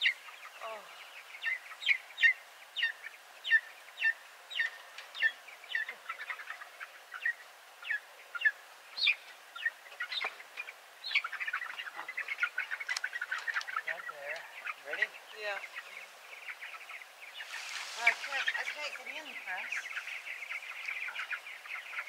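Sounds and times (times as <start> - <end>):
chicks peeping: 0.0 - 22.0.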